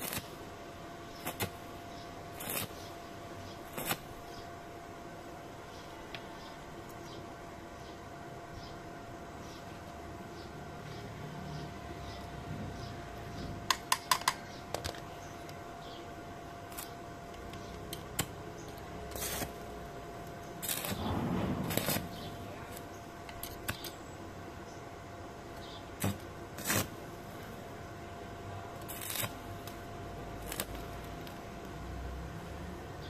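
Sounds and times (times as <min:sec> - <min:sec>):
faint steady hum: 0:00.0 - 0:33.0
scraping sound: 0:20.6 - 0:22.8.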